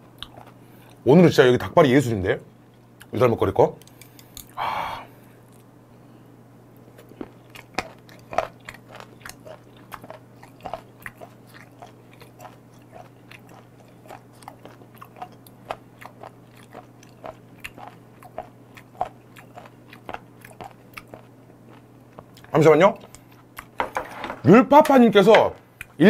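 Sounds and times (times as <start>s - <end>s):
steady low hum: 0.0s - 26.0s
chewing crunches: 0.1s - 1.0s, 6.8s - 23.8s.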